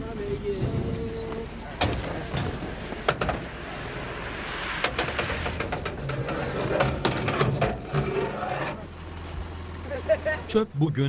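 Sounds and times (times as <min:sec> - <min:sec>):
scrap metal clanking and rattling: 0:01.8 - 0:03.5, 0:04.8 - 0:09.4.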